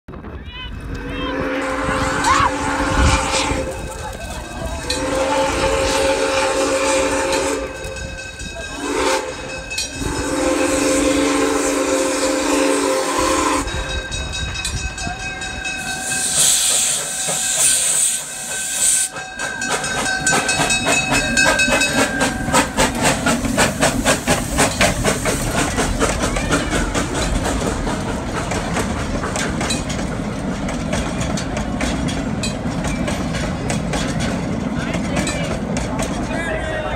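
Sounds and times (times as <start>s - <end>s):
railway cars rumbling past: 0.1s - 36.9s
steam locomotive exhaust chuffs: 0.8s - 36.8s
steam hiss: 8.8s - 14.3s, 15.7s - 30.0s.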